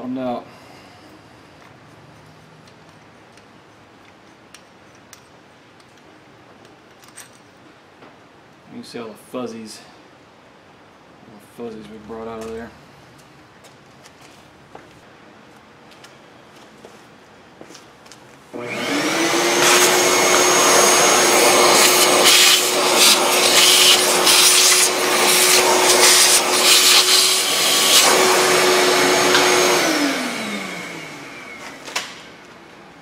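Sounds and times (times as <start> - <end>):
shop vacuum running: 18.5 - 32.8.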